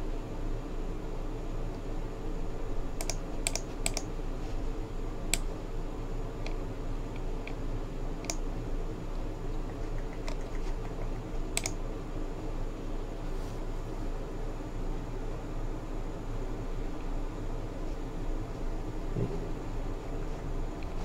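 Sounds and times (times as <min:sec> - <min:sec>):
steady low hum: 0:00.0 - 0:21.0
keyboard key clicks: 0:03.0 - 0:04.1, 0:10.0 - 0:11.8.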